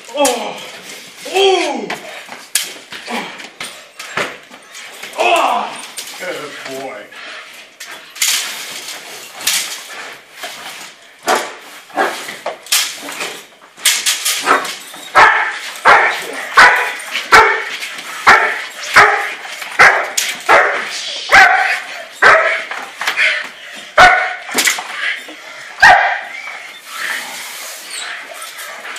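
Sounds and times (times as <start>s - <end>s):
dog barking: 14.5s - 22.7s, 24.0s - 24.5s, 25.8s - 26.3s.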